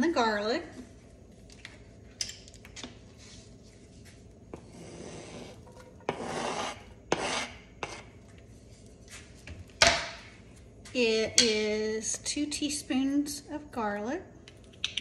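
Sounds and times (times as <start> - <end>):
utensil scraping a frying pan: 4.5 - 8.1.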